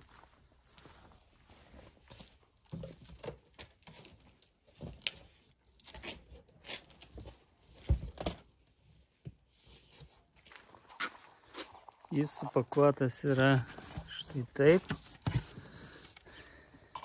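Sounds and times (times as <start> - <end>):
cardboard lid scraping: 13.3 - 16.2.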